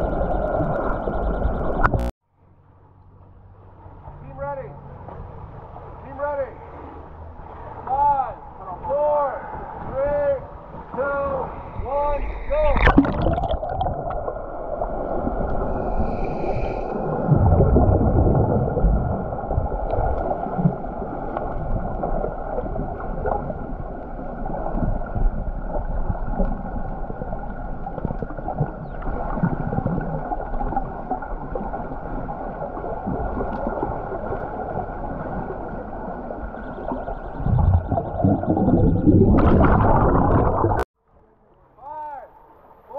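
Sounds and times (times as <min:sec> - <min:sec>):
underwater churning and bubbling: 0:00.0 - 0:02.1, 0:09.5 - 0:40.9.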